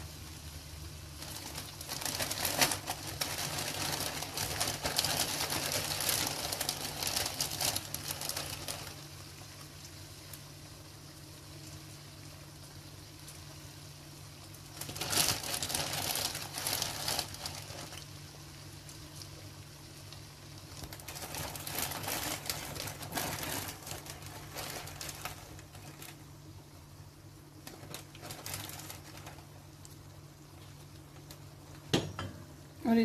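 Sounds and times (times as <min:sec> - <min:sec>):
low steady hum: 0:00.0 - 0:33.0
plastic bag rustling: 0:01.0 - 0:09.4, 0:14.6 - 0:18.5, 0:20.6 - 0:26.6, 0:27.6 - 0:31.8.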